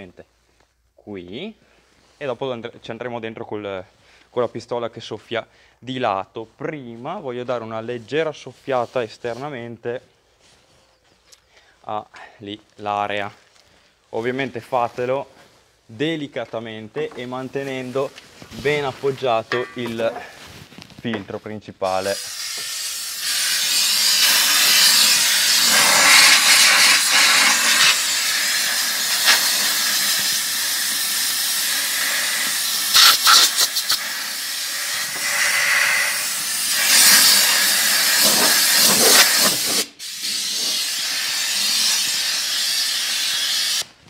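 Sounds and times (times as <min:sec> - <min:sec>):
compressed air hissing: 0:21.9 - 0:43.9.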